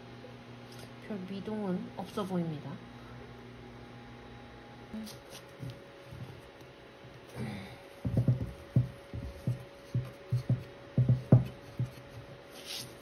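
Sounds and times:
faint steady hum: 0.0 - 13.0
low thumps and knocks: 8.0 - 12.0.

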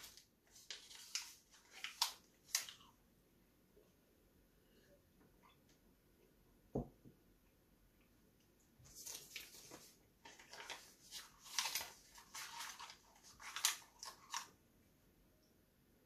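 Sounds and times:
paper crinkling while chewed: 8.9 - 14.6.

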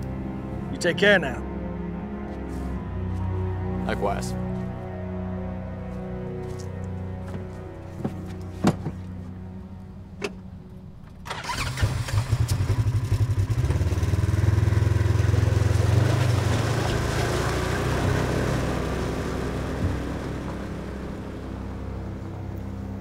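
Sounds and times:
vehicle engine cranking and running: 11.0 - 22.8.

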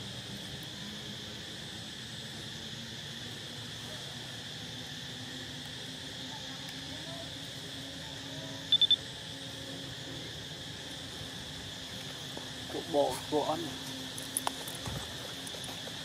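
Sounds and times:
high-pitched insect chorus: 0.0 - 16.0
loud high beeps: 8.7 - 9.0.

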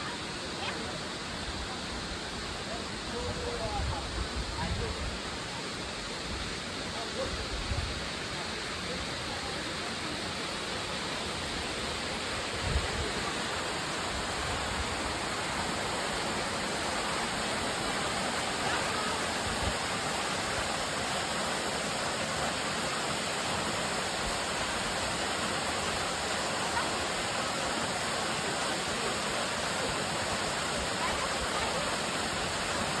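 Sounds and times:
waterfall pouring into pool: 8.1 - 33.0.

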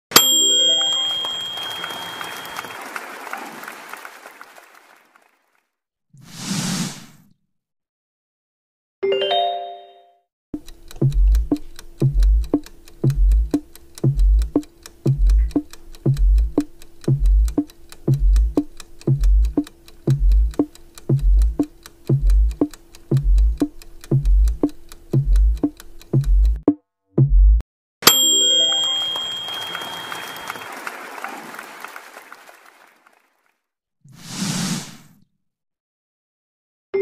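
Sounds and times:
fast even ticking: 10.6 - 26.8
deep beat: 11.0 - 27.6.

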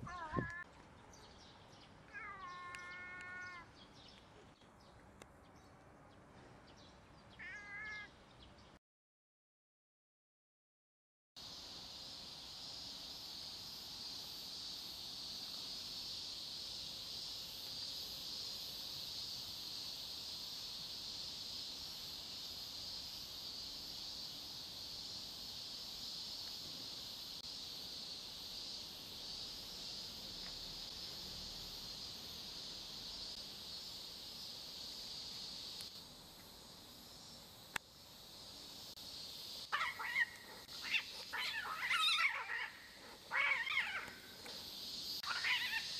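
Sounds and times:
cats fighting and yowling: 2.1 - 3.7, 7.4 - 8.1, 39.7 - 44.2, 45.2 - 45.9.

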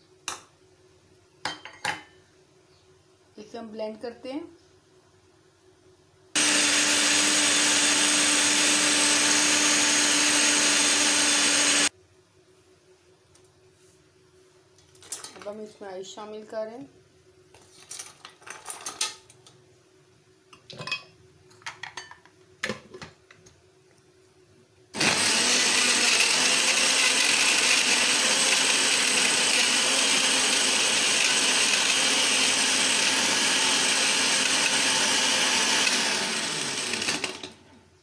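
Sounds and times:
blender running loudly: 6.4 - 11.9, 25.0 - 37.6.

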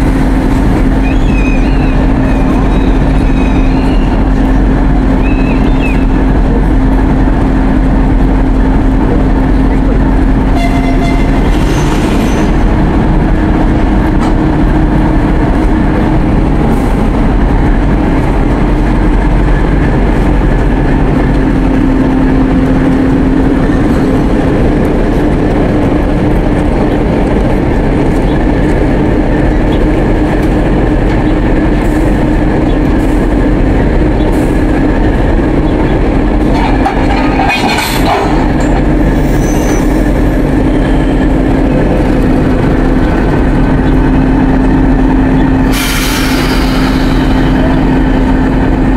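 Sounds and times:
diesel locomotive engine rumbling: 0.0 - 48.9.

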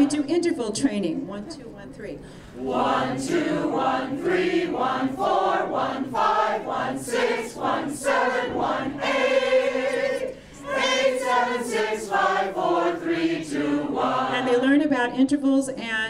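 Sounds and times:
choir singing warm-up: 2.6 - 14.8.

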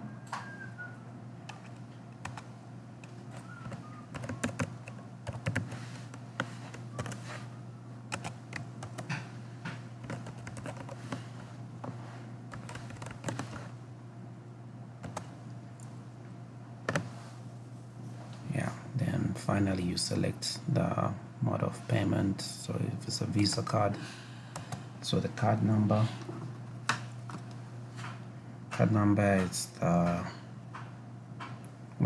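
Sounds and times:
steady low hum: 0.0 - 32.0
computer keyboard typing: 1.4 - 7.3, 8.1 - 9.2, 10.0 - 11.4, 12.5 - 13.7, 15.0 - 15.3.

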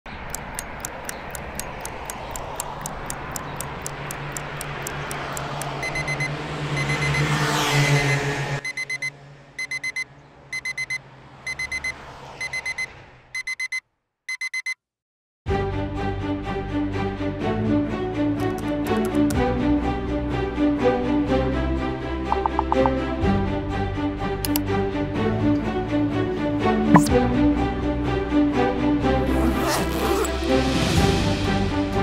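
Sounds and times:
clock ticking: 0.2 - 7.2, 22.4 - 23.0
digital alarm clock beeping: 0.3 - 14.8, 22.4 - 22.9
music: 15.5 - 32.0.

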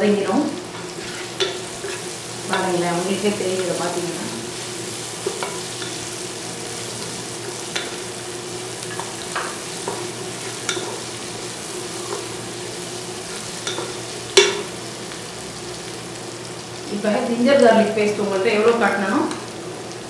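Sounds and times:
onions frying in oil: 0.0 - 20.0
wooden spatula scraping pan: 0.7 - 2.6.

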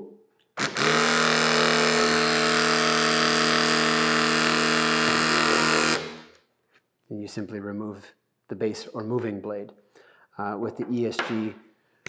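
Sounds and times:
hydraulic cutter motor and pump running: 0.6 - 6.3.

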